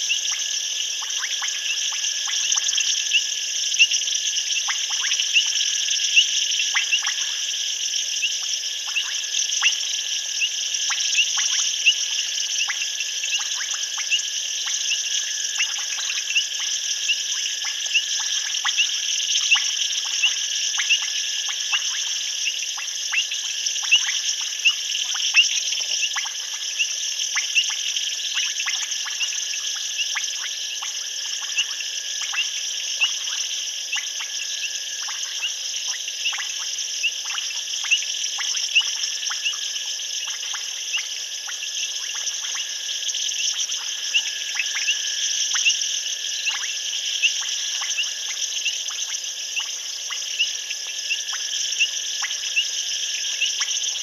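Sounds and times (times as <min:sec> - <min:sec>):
shrill insect trill: 0:00.0 - 0:54.0
frog clicks and chirps: 0:01.0 - 0:07.4, 0:08.2 - 0:54.0.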